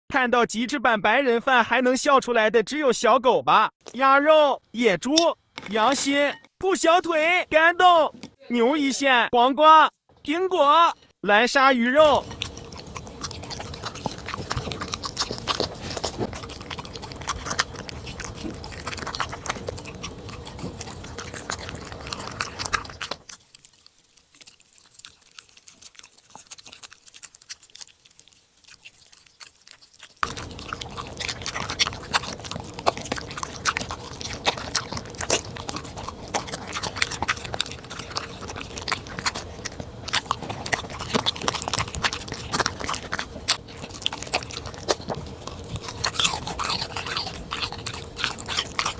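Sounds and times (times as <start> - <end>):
dog chewing and crunching food: 11.8 - 48.9.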